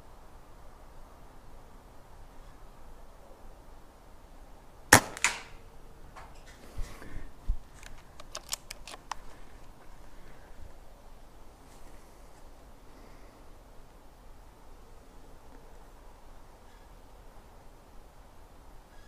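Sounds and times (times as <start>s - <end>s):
air rifle shot crack: 4.9s - 5.6s
small mechanical clicks: 7.8s - 9.2s.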